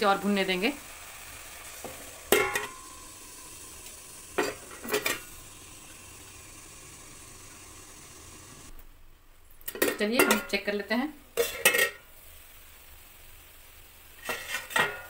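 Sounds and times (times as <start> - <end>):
carrots sizzling in a pan: 0.0 - 8.7, 10.1 - 15.0
metal lid clanking on pan: 1.8 - 2.9, 4.4 - 5.3, 11.4 - 12.0, 14.3 - 15.0.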